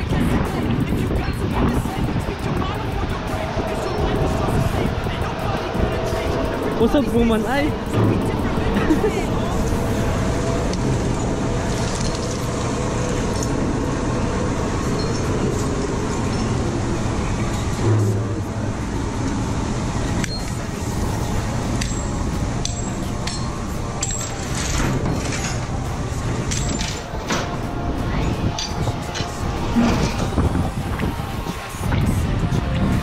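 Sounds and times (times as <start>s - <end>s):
machinery din: 1.6s - 31.2s
chains clinking and rattling: 4.2s - 13.6s, 21.8s - 27.2s.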